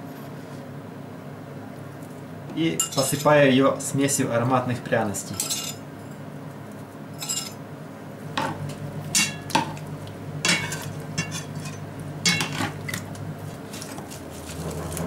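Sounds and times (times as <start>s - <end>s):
metal spoon clinking on metal: 2.8s - 3.3s, 5.4s - 5.8s, 7.2s - 7.6s.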